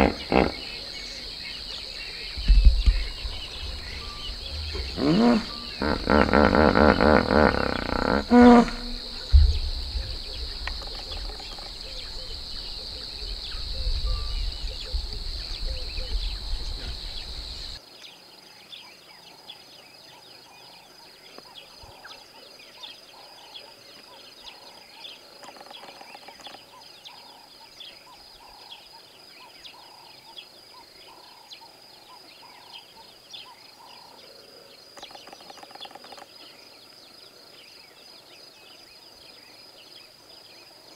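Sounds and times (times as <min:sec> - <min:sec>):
pitched animal call: 0:00.0 - 0:01.0, 0:03.0 - 0:09.4
faint bird calls: 0:00.0 - 0:17.8
high insect buzz: 0:00.0 - 0:17.8
low rumble: 0:01.8 - 0:06.2, 0:08.6 - 0:17.8.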